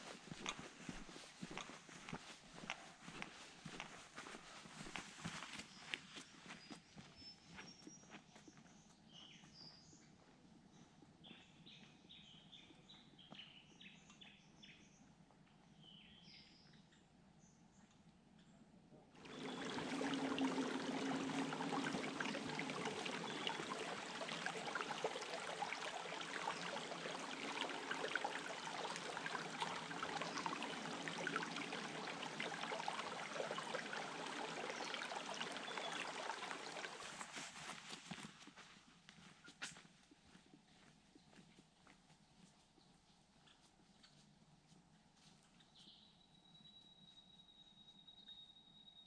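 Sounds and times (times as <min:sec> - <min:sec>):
birds chirping: 0:19.2 - 0:37.2
creek rushing over rocks: 0:19.2 - 0:38.0.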